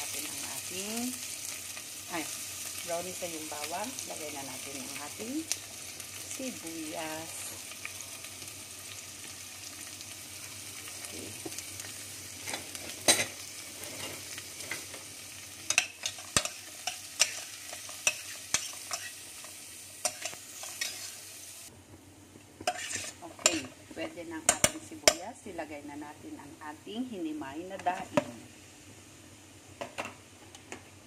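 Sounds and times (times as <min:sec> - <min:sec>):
onion and garlic sizzling in oil: 0:00.0 - 0:31.0
metal spoon scraping a pot: 0:15.7 - 0:19.2, 0:20.0 - 0:21.2, 0:22.7 - 0:23.7.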